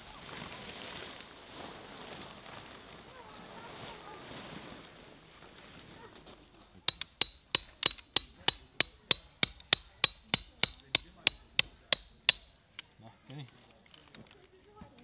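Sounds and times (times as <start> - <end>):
hammer striking metal stake: 6.9 - 12.6.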